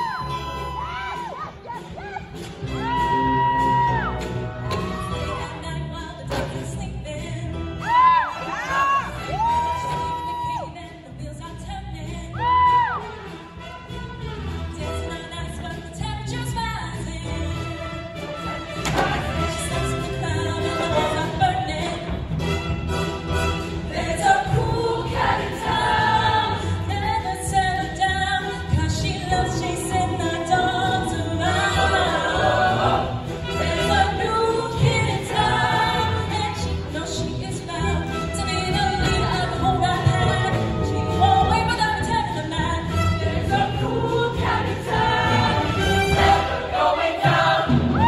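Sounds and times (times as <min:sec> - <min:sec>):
live instrumental band: 0:00.0 - 0:05.7, 0:12.4 - 0:27.6
mixed-voice choir singing: 0:17.6 - 0:22.2, 0:23.8 - 0:48.0.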